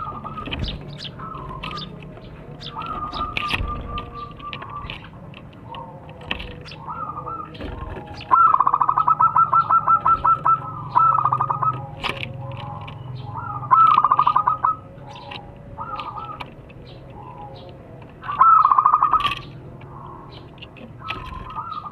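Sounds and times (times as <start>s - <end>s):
dove cooing in rapid notes: 0.0s - 21.9s.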